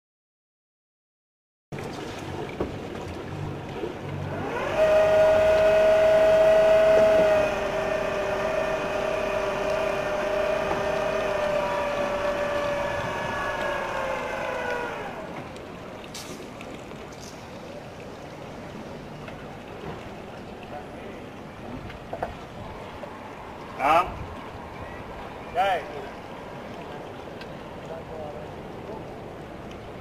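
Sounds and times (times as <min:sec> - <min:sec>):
boat hoist motor whining: 0:04.1 - 0:15.6.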